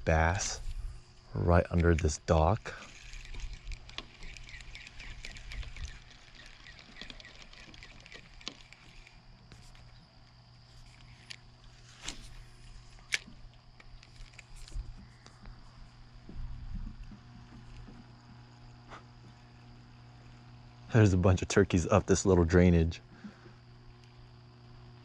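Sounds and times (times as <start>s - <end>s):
insect chirping: 0.0s - 25.0s
steady low hum: 0.0s - 25.0s
sharp clicks: 1.6s - 10.0s, 12.9s - 15.6s.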